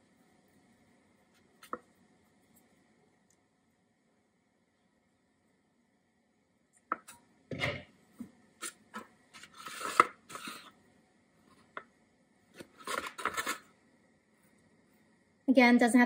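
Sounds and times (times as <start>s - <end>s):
metal spatula scraping foil pan: 9.4s - 10.7s, 12.7s - 13.6s.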